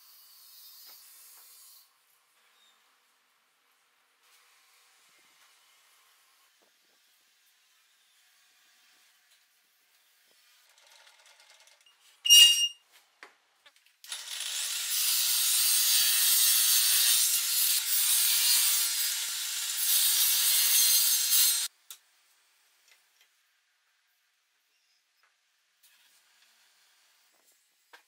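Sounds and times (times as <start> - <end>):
sharp squeak: 12.2 - 12.8
table saw cutting wood: 14.1 - 21.7.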